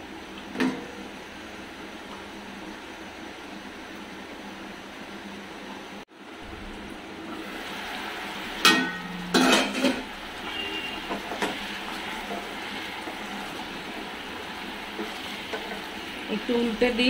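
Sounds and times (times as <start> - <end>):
gravy sizzling and bubbling: 0.0 - 17.0
metal pan lid clanking: 8.6 - 10.1.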